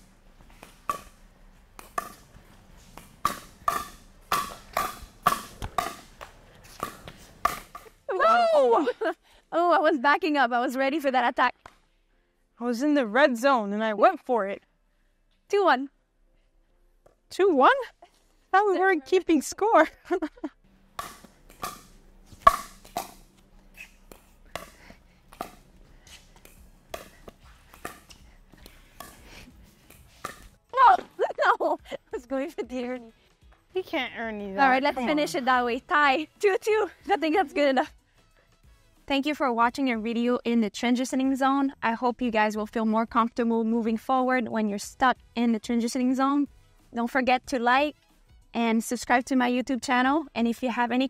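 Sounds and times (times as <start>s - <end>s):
ball bouncing on court: 0.5s - 1.2s, 1.8s - 7.9s, 21.0s - 29.3s.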